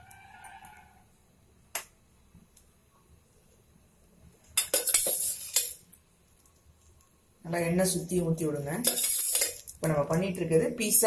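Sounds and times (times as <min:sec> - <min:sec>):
metal utensils clattering: 0:04.6 - 0:05.8, 0:08.8 - 0:09.8.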